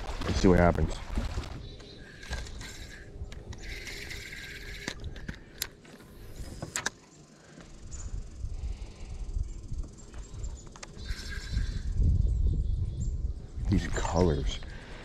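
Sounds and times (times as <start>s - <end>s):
fishing reel gears whirring: 2.0s - 5.7s, 10.9s - 12.0s.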